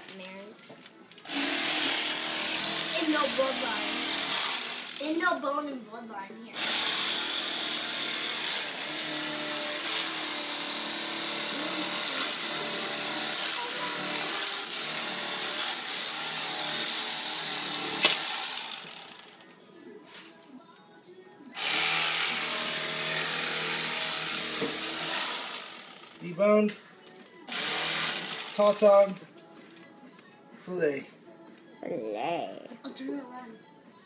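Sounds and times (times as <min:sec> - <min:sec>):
electric knife buzzing: 0:01.2 - 0:05.3, 0:06.6 - 0:19.5, 0:21.6 - 0:26.3, 0:27.5 - 0:28.8.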